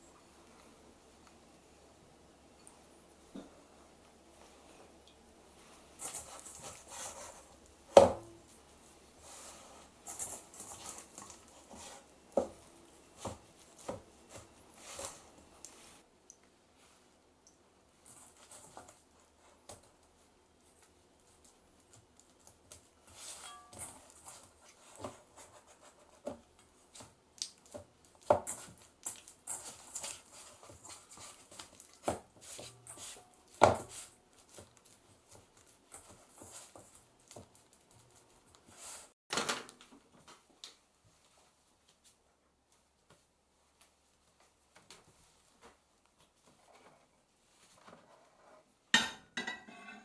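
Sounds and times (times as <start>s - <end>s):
hands mixing wet dough: 0.0s - 39.2s.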